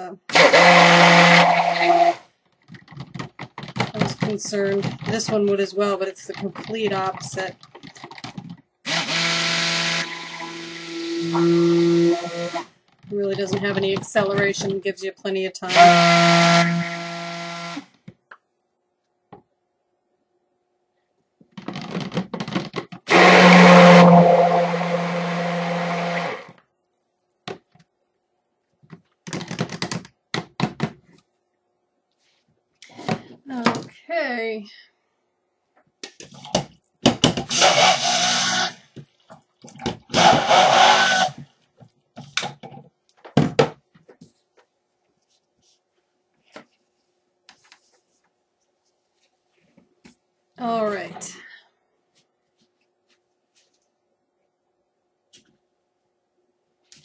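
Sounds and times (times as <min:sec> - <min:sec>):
stick blender whirring: 0:00.3 - 0:02.2, 0:06.4 - 0:12.7, 0:15.7 - 0:17.8, 0:23.1 - 0:26.6, 0:37.4 - 0:38.8, 0:40.0 - 0:41.4.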